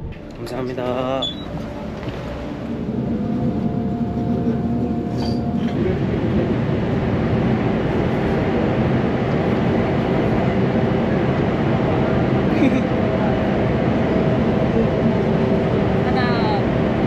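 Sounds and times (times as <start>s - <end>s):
steady whine: 0.0s - 17.0s
train wheels and motors rumbling: 0.0s - 17.0s.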